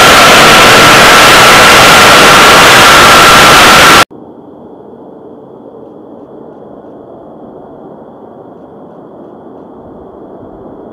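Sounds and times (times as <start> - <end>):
distant jet engine running: 0.0 - 4.1.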